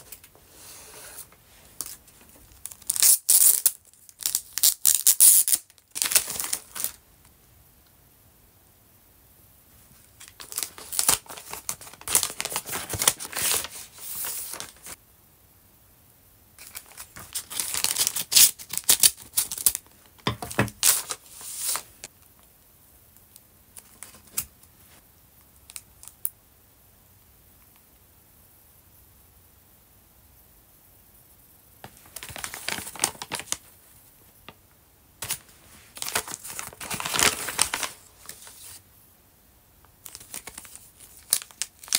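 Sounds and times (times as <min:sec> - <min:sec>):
plastic and paper crinkling: 0:01.8 - 0:07.0, 0:10.1 - 0:15.0, 0:16.6 - 0:22.1, 0:31.8 - 0:33.7, 0:35.2 - 0:38.8, 0:40.0 - 0:41.9.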